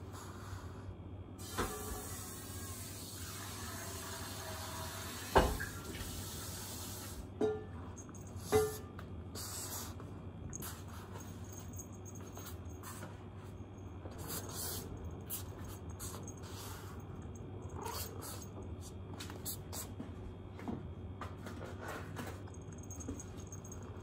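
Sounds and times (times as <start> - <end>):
steady low hum: 6.1 - 24.0.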